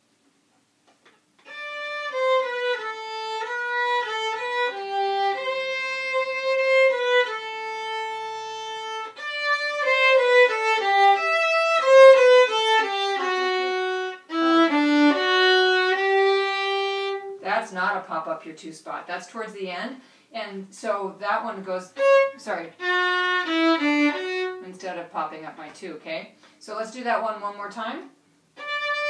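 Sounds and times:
solo violin melody: 0:01.4 - 0:17.4, 0:21.8 - 0:24.8, 0:28.5 - 0:29.0.

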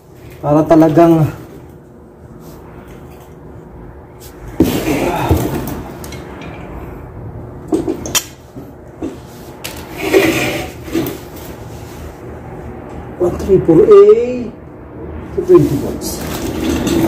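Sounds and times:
clatter and knocks: 0:16.2 - 0:17.0.

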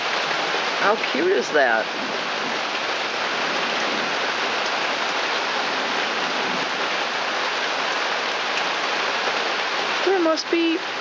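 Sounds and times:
pouring rain: 0:00.0 - 0:11.0.

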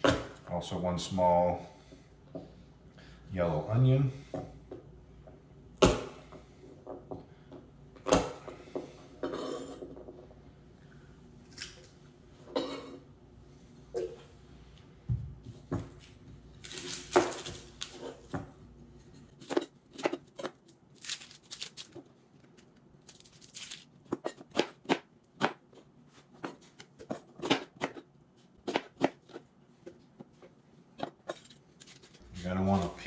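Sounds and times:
onion skin crackling and tearing: 0:16.6 - 0:18.1, 0:20.6 - 0:23.9.

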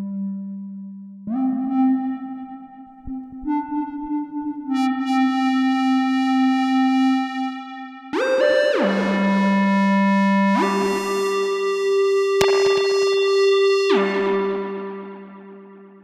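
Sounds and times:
synthesizer notes with echo: 0:08.0 - 0:16.0
sharp click: 0:12.4 - 0:13.5.

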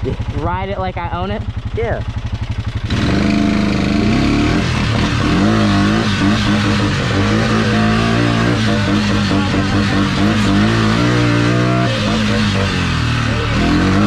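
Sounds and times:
atv engine revving: 0:00.0 - 0:14.0.

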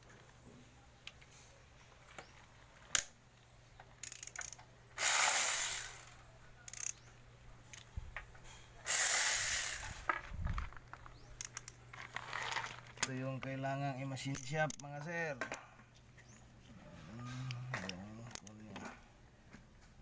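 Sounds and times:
metallic clicks and clinks: 0:04.0 - 0:04.7, 0:06.7 - 0:07.1, 0:11.4 - 0:11.8, 0:14.3 - 0:15.6, 0:18.2 - 0:18.6
ratchet clicking: 0:04.0 - 0:06.1, 0:06.7 - 0:07.0.

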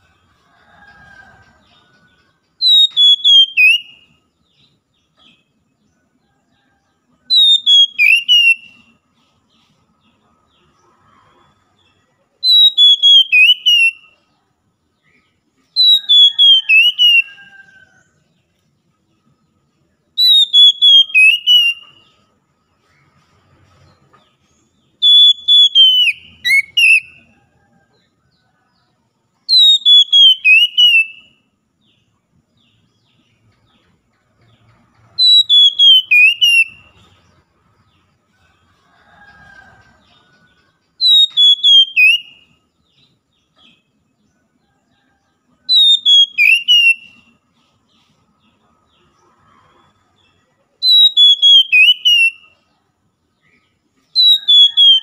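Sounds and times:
bird singing whistled phrase: 0:02.6 - 0:04.0, 0:07.3 - 0:08.8, 0:12.4 - 0:14.1, 0:15.8 - 0:17.4, 0:20.2 - 0:22.0, 0:25.0 - 0:27.2, 0:29.5 - 0:31.3, 0:35.2 - 0:36.9, 0:41.0 - 0:42.4, 0:45.7 - 0:47.2, 0:50.8 - 0:52.4, 0:54.2 - 0:55.0.

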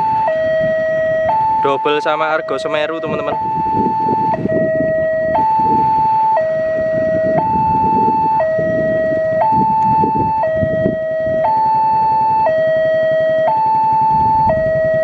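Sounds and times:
level crossing two-tone alarm: 0:00.0 - 0:15.0.

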